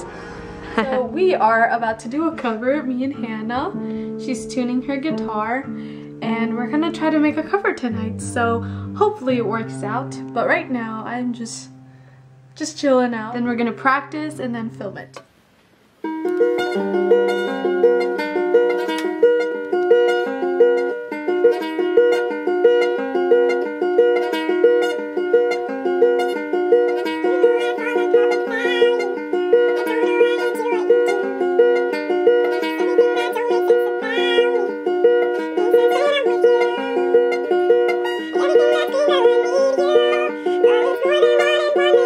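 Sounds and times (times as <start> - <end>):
person singing: 0.0 - 1.4, 6.1 - 10.6, 27.0 - 31.8, 32.4 - 37.5, 38.2 - 42.0
acoustic guitar fingerpicked arpeggio: 0.0 - 15.2, 16.1 - 42.0.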